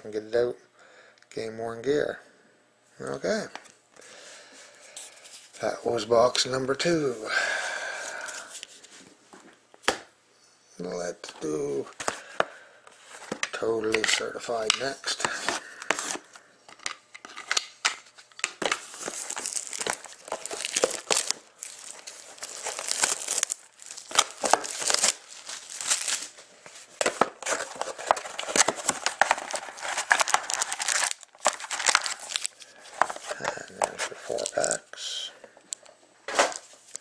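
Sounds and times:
shrink wrap crinkling and tearing: 17.4s - 35.2s.

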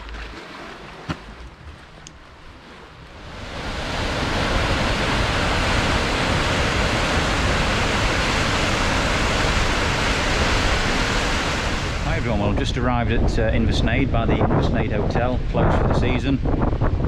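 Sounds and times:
waterfall rushing: 3.2s - 12.3s.

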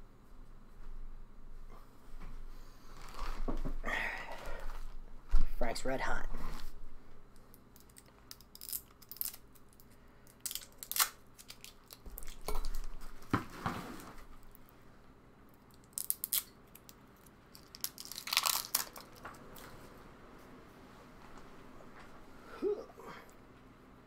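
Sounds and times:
plastic shrink-wrap crinkling: 2.9s - 3.4s, 7.7s - 13.4s, 15.7s - 19.7s.

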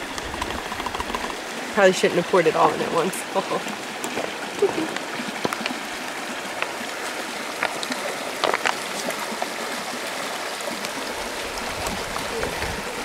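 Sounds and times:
creek water running: 0.0s - 13.0s
water trickling into plastic cup: 2.7s - 13.0s.

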